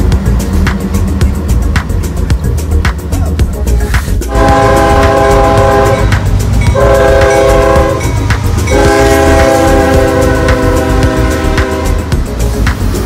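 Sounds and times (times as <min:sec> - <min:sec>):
diesel engine low rumble: 0:00.0 - 0:13.0
train air horn blasts: 0:04.2 - 0:12.2.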